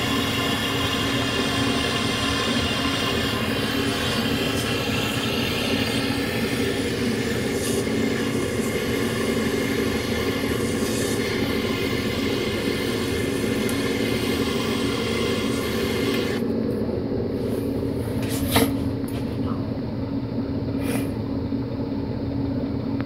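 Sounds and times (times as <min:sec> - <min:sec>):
butane torch hissing: 0:00.0 - 0:16.4.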